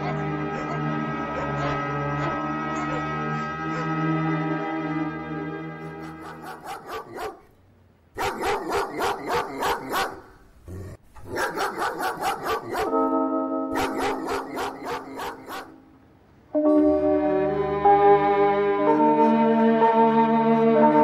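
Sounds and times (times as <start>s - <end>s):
background music: 0.0s - 7.4s, 11.7s - 21.0s
dog barking: 6.0s - 7.5s, 8.2s - 10.4s, 11.2s - 13.1s, 13.7s - 15.8s.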